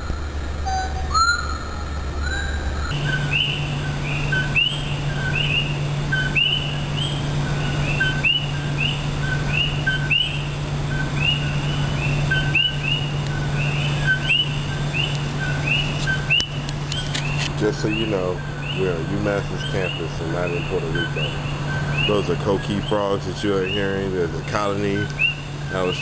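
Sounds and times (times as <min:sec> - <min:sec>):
frogs calling: 0:00.0 - 0:26.0
steady low hum: 0:00.0 - 0:26.0.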